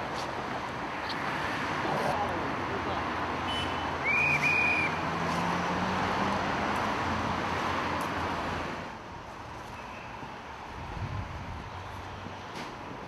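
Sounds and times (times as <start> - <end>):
city street traffic: 0.0 - 13.0
vehicle passing: 0.9 - 8.9.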